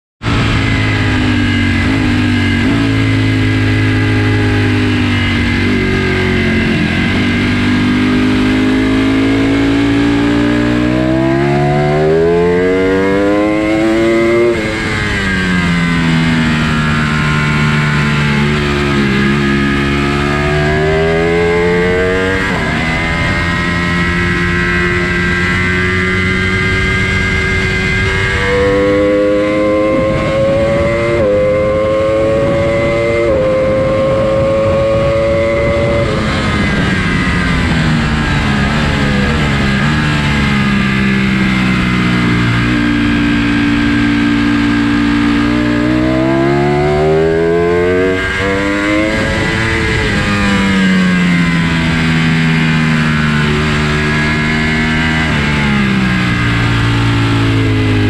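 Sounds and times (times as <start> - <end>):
motorcycle engine revving: 0.2 - 58.0
wind rushing: 18.2 - 44.2, 44.8 - 52.7.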